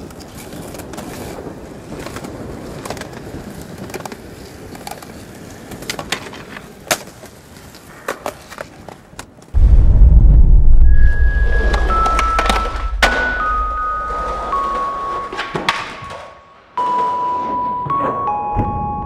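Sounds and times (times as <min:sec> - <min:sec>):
skateboard clacks: 0:00.0 - 0:09.6, 0:11.6 - 0:18.1
skateboard wheels rolling on concrete: 0:00.0 - 0:09.6, 0:10.8 - 0:18.8.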